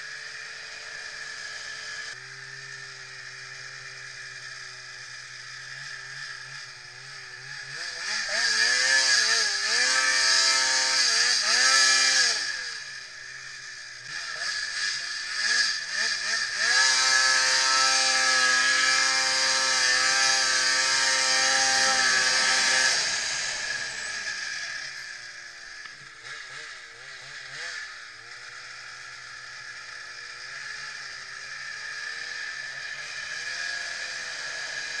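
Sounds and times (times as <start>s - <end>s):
snowmobile engine running: 0.0s - 35.0s.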